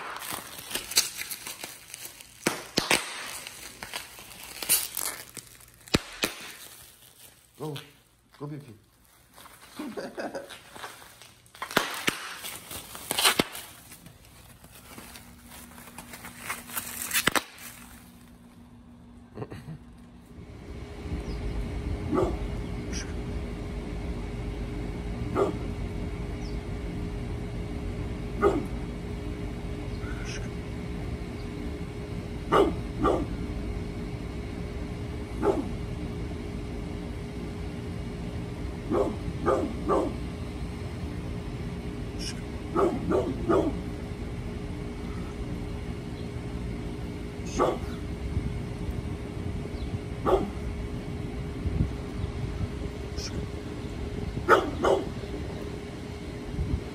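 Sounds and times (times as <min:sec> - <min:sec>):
steady background hum: 0:00.0 - 0:56.9
dog barking: 0:22.1 - 0:22.4, 0:25.4 - 0:25.6, 0:28.4 - 0:28.7, 0:32.5 - 0:33.4, 0:35.4 - 0:35.7, 0:38.9 - 0:40.2, 0:42.7 - 0:43.8, 0:47.5 - 0:47.9, 0:50.2 - 0:50.6, 0:54.5 - 0:55.1.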